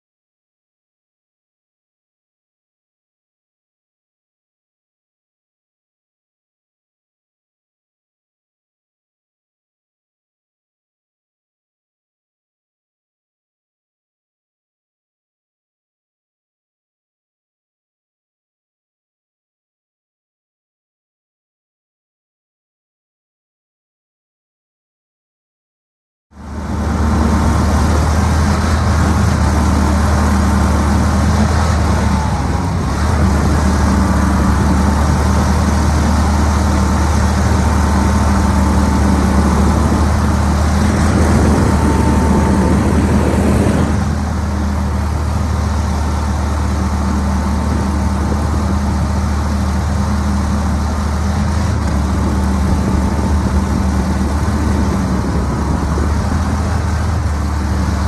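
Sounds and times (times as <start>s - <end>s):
outboard motor running: 26.4s - 58.0s.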